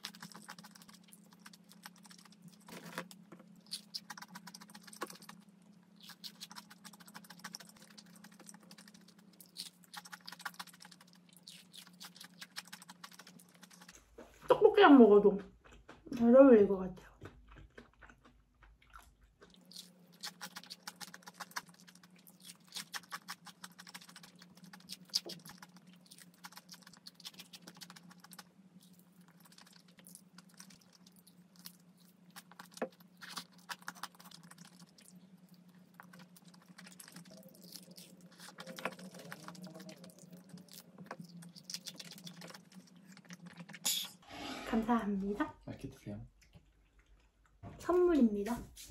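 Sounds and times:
chewing crispy fried chicken: 0:00.0 - 0:14.6, 0:15.4 - 0:16.1, 0:17.1 - 0:43.8
faint low hum: 0:00.0 - 0:48.9.

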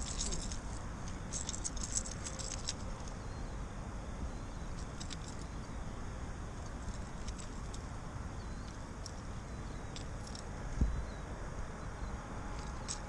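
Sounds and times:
metallic clicking and rattling of lure: 0:00.0 - 0:03.2, 0:04.8 - 0:05.8, 0:06.6 - 0:07.8, 0:08.6 - 0:10.5, 0:12.5 - 0:13.0
steady low background noise: 0:00.0 - 0:13.0.

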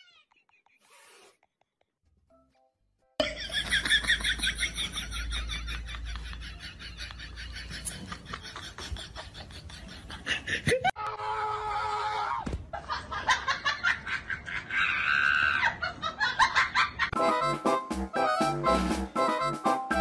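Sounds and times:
people laughing: 0:03.2 - 0:11.0, 0:12.7 - 0:17.1.

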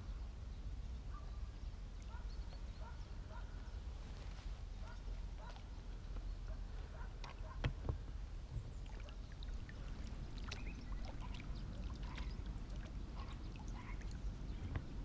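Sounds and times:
low steady rumble: 0:00.0 - 0:15.0
water splashes and drips: 0:07.1 - 0:15.0.

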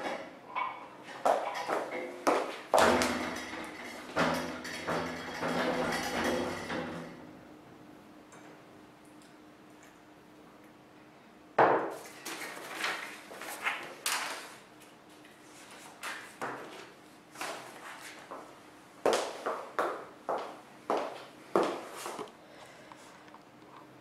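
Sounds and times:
knocks and clatters: 0:00.0 - 0:07.2
faint steady hum: 0:00.0 - 0:24.0.

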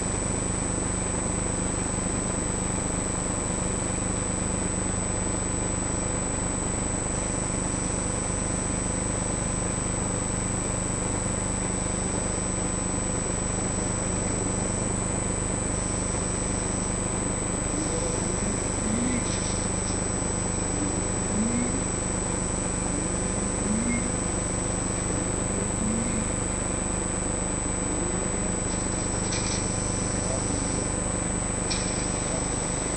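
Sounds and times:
machine hum: 0:00.0 - 0:32.9
high-pitched whine: 0:12.9 - 0:32.9.

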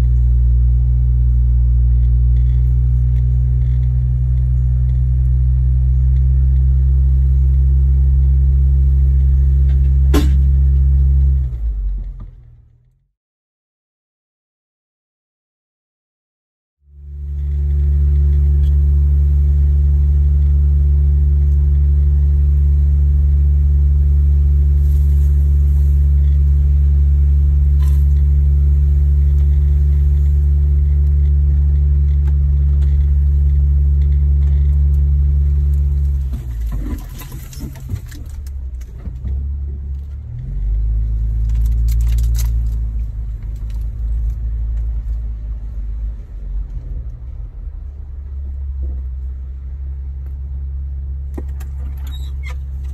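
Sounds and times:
engine drone inside vehicle: 0:00.0 - 0:13.1, 0:16.8 - 0:52.9
rattling and clicks: 0:24.8 - 0:40.2, 0:41.3 - 0:45.2, 0:51.3 - 0:52.9.

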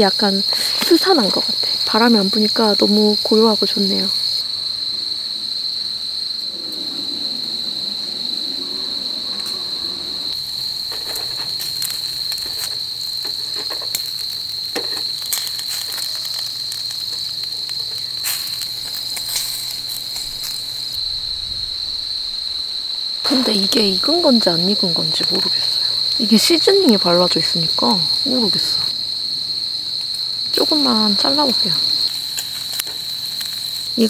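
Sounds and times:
night insects trilling: 0:00.0 - 0:34.0.

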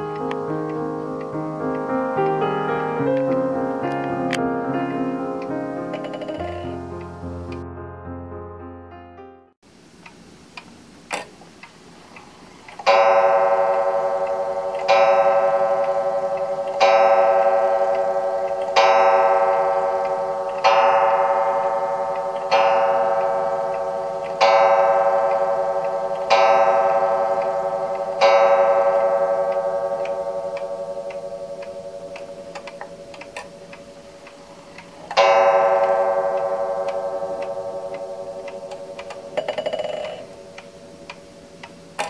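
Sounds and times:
clock striking on gong: 0:00.0 - 0:07.6, 0:12.8 - 0:42.0
clock ticking: 0:00.0 - 0:07.6, 0:09.9 - 0:42.0
sharp click: 0:10.6 - 0:11.4.

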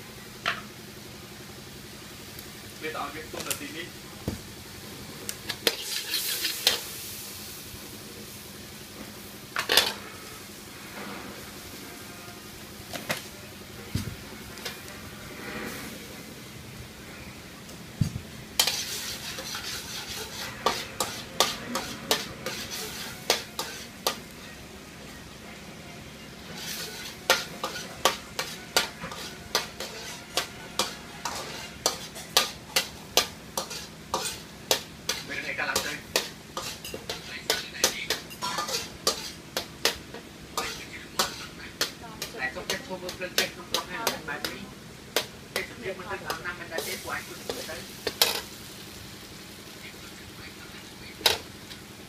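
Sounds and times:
food sizzling: 0:00.0 - 0:52.0
metal spatula scraping wok: 0:05.6 - 0:07.0, 0:09.6 - 0:11.7, 0:14.5 - 0:16.3, 0:18.6 - 0:24.3, 0:26.4 - 0:44.6, 0:45.6 - 0:48.6.

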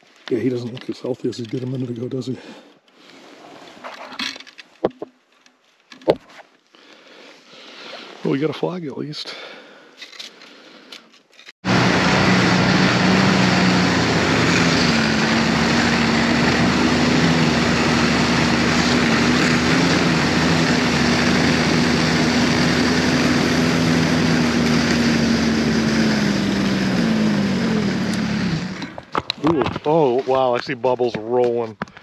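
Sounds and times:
snowmobile engine running: 0:11.6 - 0:30.5.

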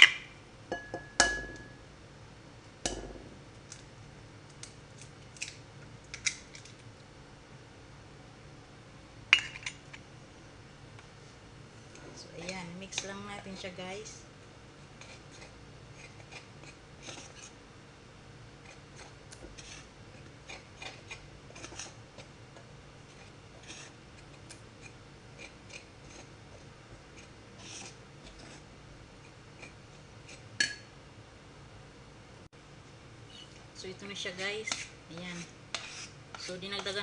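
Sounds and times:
spoon knocking bowl: 0:00.7 - 0:01.8
spoon scraping ceramic bowl: 0:18.6 - 0:22.0, 0:23.1 - 0:24.0, 0:34.6 - 0:37.0.

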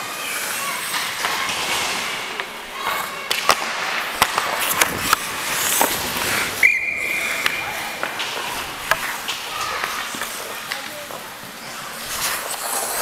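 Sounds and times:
hockey sticks clacking: 0:00.0 - 0:13.0
skates scraping on ice: 0:00.0 - 0:13.0
referee's whistle blast: 0:06.6 - 0:07.3.

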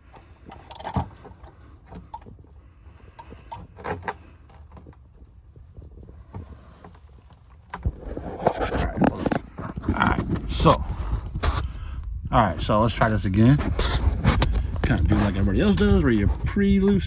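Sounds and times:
socket ratchet clicking: 0:00.5 - 0:01.1.

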